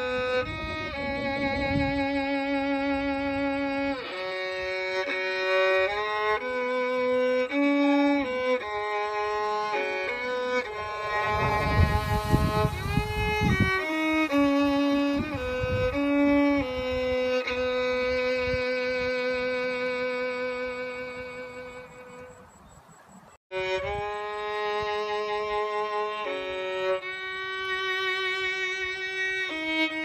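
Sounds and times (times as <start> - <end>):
slow violin melody: 0.0 - 22.5, 23.5 - 30.0
low rumbling noise: 10.5 - 17.1.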